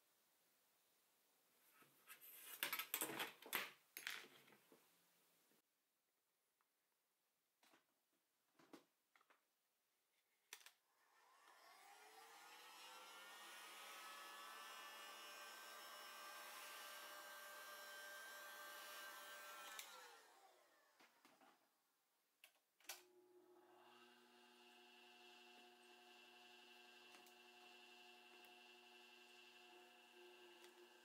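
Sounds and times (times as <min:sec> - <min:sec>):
heat gun fan whine: 0:11.2 - 0:20.5.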